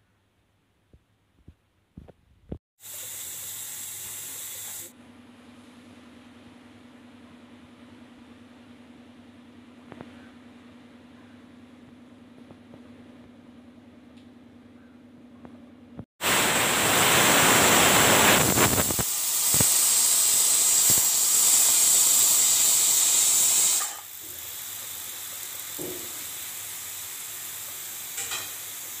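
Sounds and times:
pressure cooker steam hissing: 0:02.8 - 0:04.9, 0:16.2 - 0:29.0.

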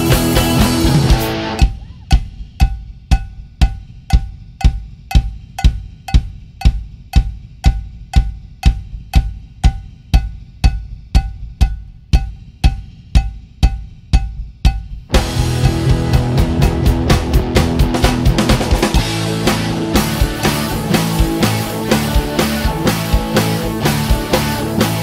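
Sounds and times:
full band playing: 0:00.0 - 0:01.7, 0:15.1 - 0:25.0
deep thumping percussion beats: 0:00.0 - 0:25.0.

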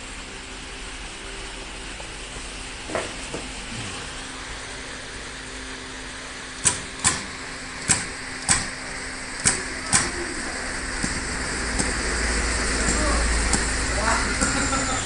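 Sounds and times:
low hum and hiss: 0:00.0 - 0:15.0
machine clacking: 0:06.6 - 0:15.0.

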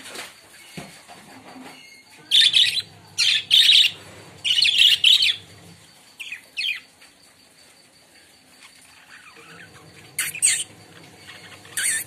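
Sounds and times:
budgerigars chirping: 0:02.3 - 0:05.5, 0:09.2 - 0:12.0.

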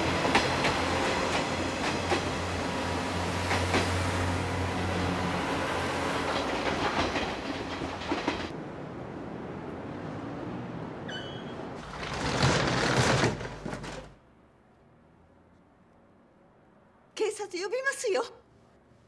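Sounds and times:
train wheels clattering over rails: 0:00.0 - 0:02.6, 0:03.4 - 0:04.1, 0:06.1 - 0:08.6.

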